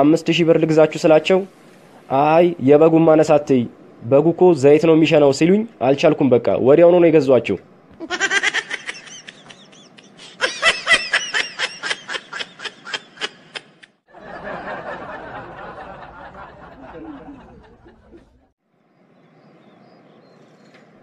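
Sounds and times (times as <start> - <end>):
quiet hissy sound: 0.0 - 8.2
snickering laugh track: 8.0 - 18.5.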